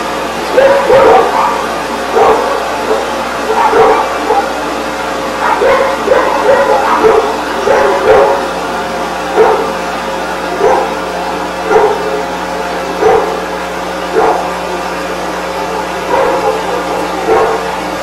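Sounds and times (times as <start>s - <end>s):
steady hum: 0.0s - 18.0s
dog barking: 0.5s - 4.6s, 5.4s - 8.6s, 9.3s - 9.8s, 10.6s - 11.0s, 11.6s - 12.2s, 13.0s - 13.5s, 14.1s - 14.6s, 15.5s - 17.8s.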